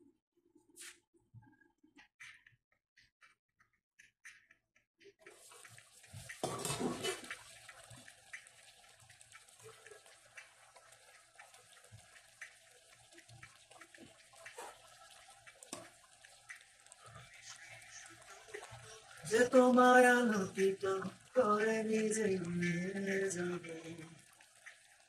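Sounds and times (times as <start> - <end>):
curry sizzling in a frying pan: 5.2 - 25.0
metal spoon scraping a pan: 6.4 - 7.3.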